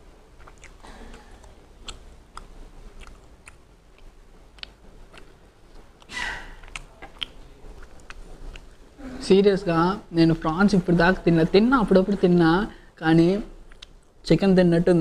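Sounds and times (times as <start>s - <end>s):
person chewing food: 0.0s - 9.0s, 13.6s - 14.2s
person sneezing: 6.1s - 6.7s.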